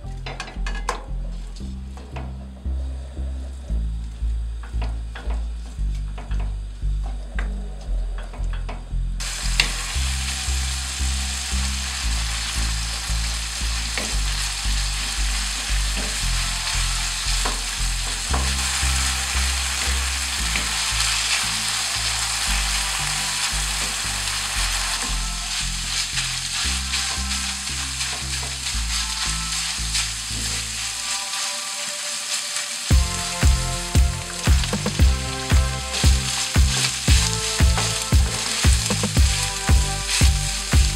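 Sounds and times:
low steady beat: 0.0 - 31.1, 32.9 - 40.9
meat sizzling in pan: 9.2 - 40.9
wooden spoon scraping: 13.9 - 40.9.

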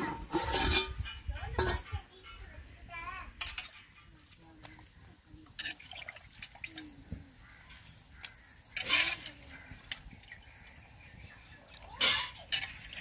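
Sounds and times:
curry bubbling in a pot: 3.6 - 13.0.

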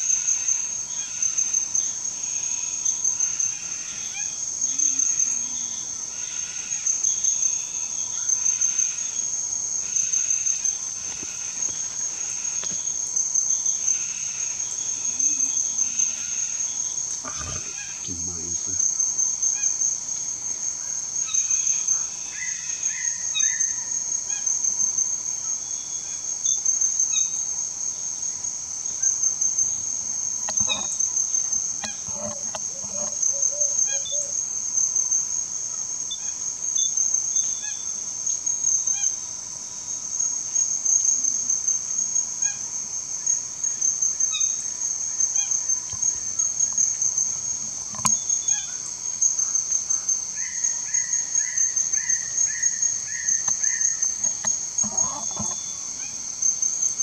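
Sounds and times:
high-pitched insect drone: 0.0 - 57.0
short animal calls: 17.2 - 18.6, 53.2 - 56.2.

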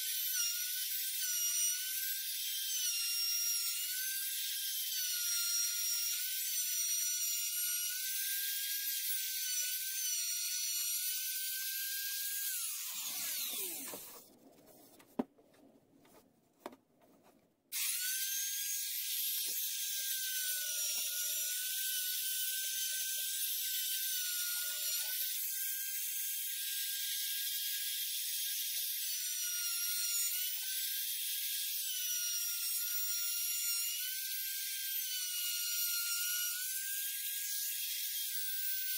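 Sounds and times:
electric router whining: 9.4 - 14.3
router spinning down: 9.5 - 14.3, 17.8 - 21.9.

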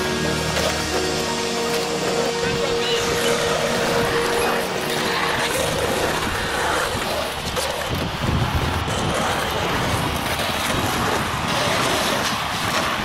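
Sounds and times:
skateboard wheels rolling on concrete: 0.0 - 13.0
wind buffeting microphone: 2.2 - 13.0.

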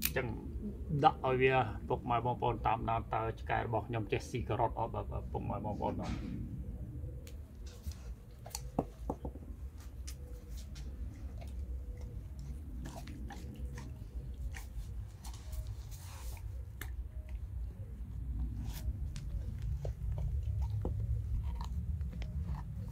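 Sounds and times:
dog crunching carrot: 9.9 - 22.9.

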